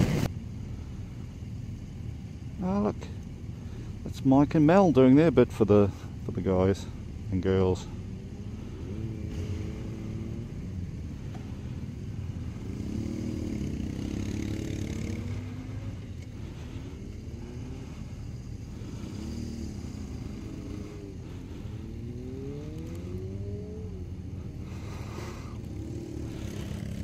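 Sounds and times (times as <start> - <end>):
motorcycle engines revving: 0.0 - 27.0.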